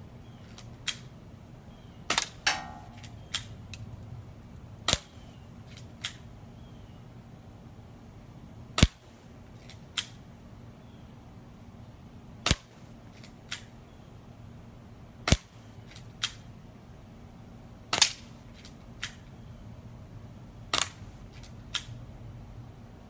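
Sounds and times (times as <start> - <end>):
airsoft gun snaps: 0.6 - 1.1, 2.1 - 3.8, 4.9 - 5.2, 9.7 - 10.2, 12.5 - 13.7, 15.3 - 16.5, 17.9 - 19.2, 20.7 - 22.0.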